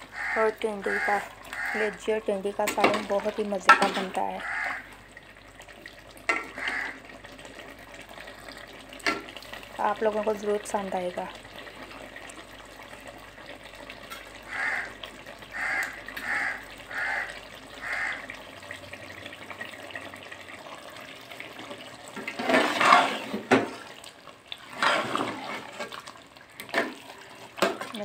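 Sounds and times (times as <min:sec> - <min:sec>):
curry bubbling in pot: 0:00.0 - 0:28.0
ladle scraping pot: 0:22.2 - 0:24.0, 0:24.6 - 0:28.0.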